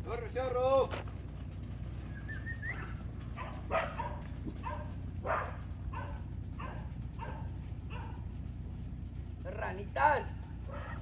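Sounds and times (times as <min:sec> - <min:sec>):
low steady rumble: 0:00.0 - 0:11.0
dog barking: 0:02.7 - 0:08.4, 0:10.6 - 0:11.0.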